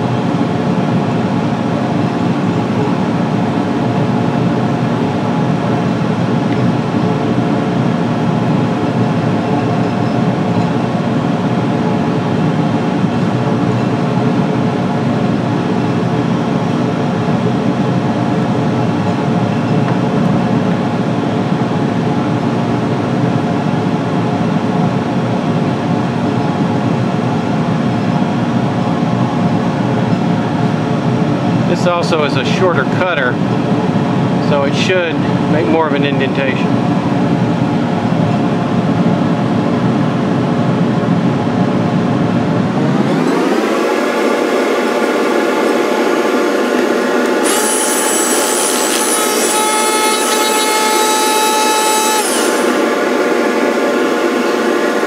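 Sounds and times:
lathe motor hum: 42.6s - 55.0s.

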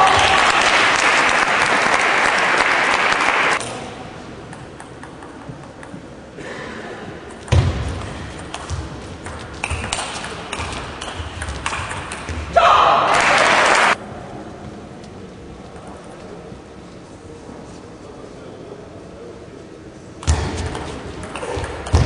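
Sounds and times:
audience applause: 0.0s - 3.6s, 13.1s - 14.0s.

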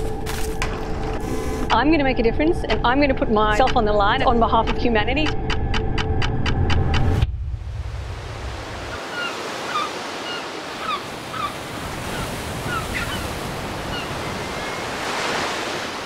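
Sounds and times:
waves washing over rocks: 8.4s - 16.0s
bird calls: 8.8s - 16.0s.

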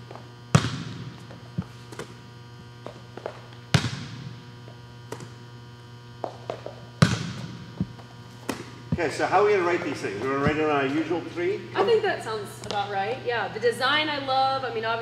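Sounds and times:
steady low hum: 0.0s - 15.0s
sharp impacts in a gym hall: 0.6s - 2.2s, 2.8s - 4.6s, 6.2s - 11.2s.

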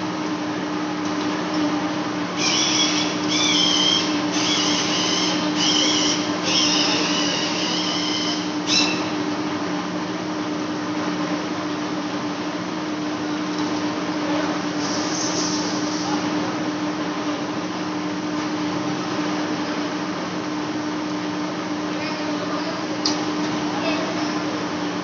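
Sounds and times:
lathe humming: 2.2s - 9.3s
high-pitched cutting squeal: 2.4s - 9.2s, 14.8s - 16.1s.

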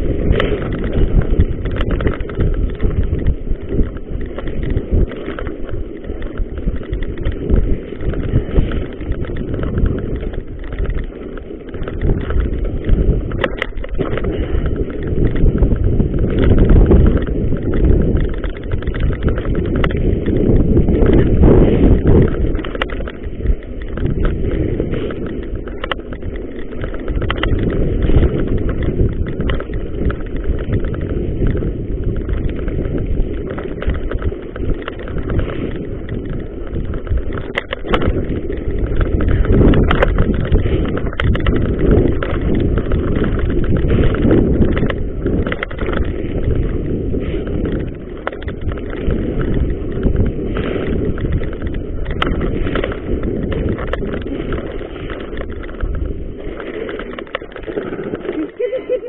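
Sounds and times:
bike rattling over bumps: 0.0s - 59.0s
bike tyres rumbling on gravel: 0.0s - 59.0s.

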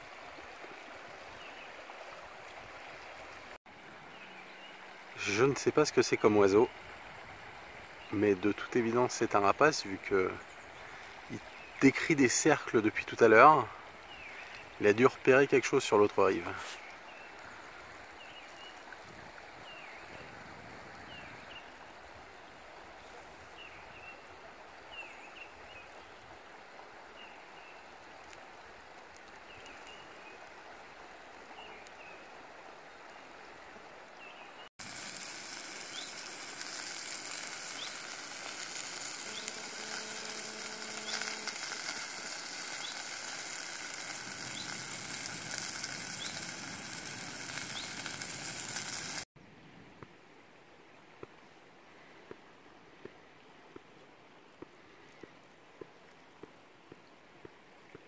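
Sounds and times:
small birds chirping: 14.1s - 14.8s, 34.2s - 49.2s
river rushing in flood: 34.8s - 49.3s.

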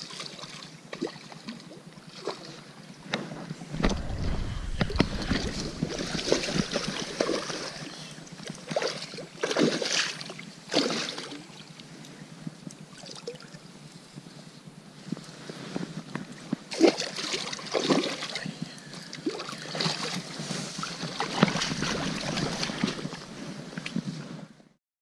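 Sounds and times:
water movement: 3.6s - 10.4s, 16.8s - 24.2s
fish splashing in water: 3.8s - 8.1s, 21.0s - 23.4s.

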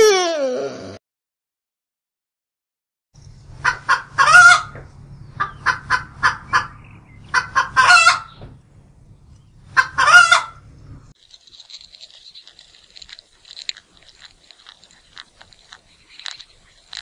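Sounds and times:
hens cackling: 3.6s - 4.8s, 5.4s - 8.4s, 9.7s - 10.6s
low steady hum: 8.4s - 9.9s.

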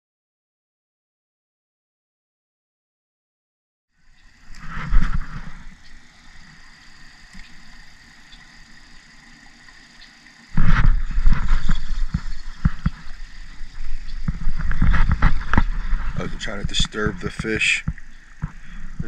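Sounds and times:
faint steady hiss: 4.0s - 19.0s
microphone buffeting rumble: 4.5s - 5.8s, 10.6s - 19.0s
microphone handling knocks: 10.6s - 19.0s.

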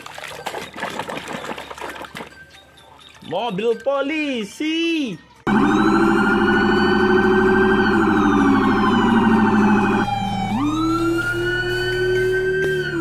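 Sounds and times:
police siren: 5.5s - 13.0s.

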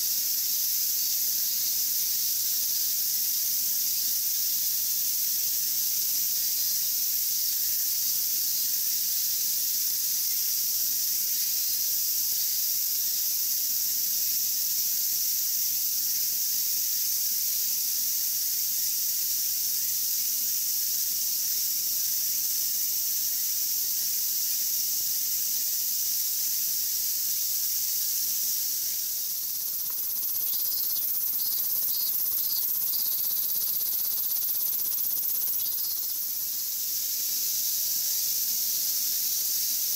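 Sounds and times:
cicadas droning: 0.0s - 39.9s
pulsing insect calls: 17.7s - 39.9s.

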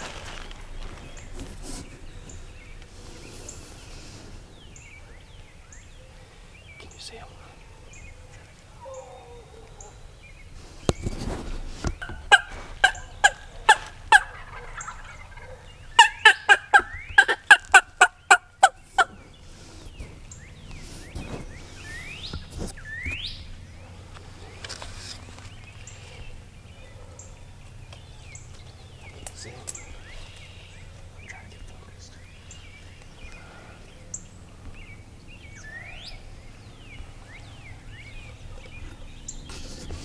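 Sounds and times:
turkey yelps: 12.0s - 19.2s.

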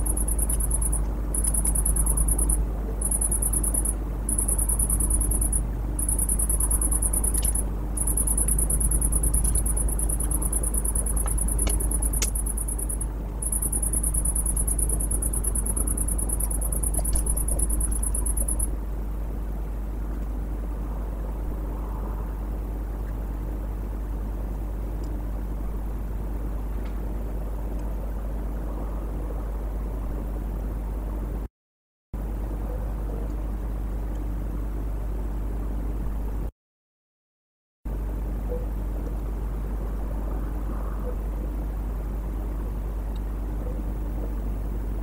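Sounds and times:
insect trilling: 0.0s - 18.7s
low electrical hum: 0.0s - 31.5s, 37.9s - 45.0s.

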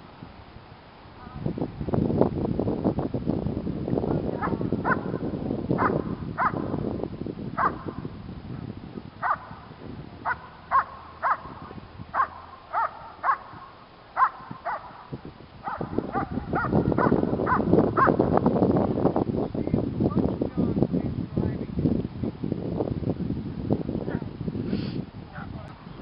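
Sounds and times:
dog barking: 4.4s - 5.2s, 5.8s - 6.7s, 7.6s - 8.0s, 9.2s - 9.6s, 10.2s - 18.2s, 25.3s - 25.6s.

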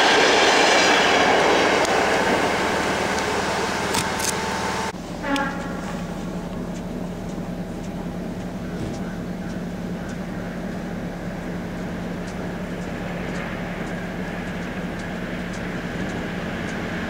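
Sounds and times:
low hum: 0.0s - 17.0s
railway station rumble: 0.0s - 17.0s
faint ticks: 5.3s - 17.0s.

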